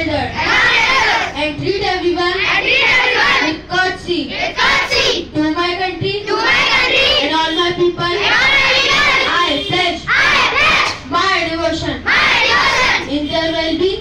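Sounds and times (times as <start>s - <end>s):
children singing: 0.4s - 1.4s, 2.5s - 3.6s, 6.3s - 7.3s, 8.2s - 9.3s, 12.1s - 13.1s.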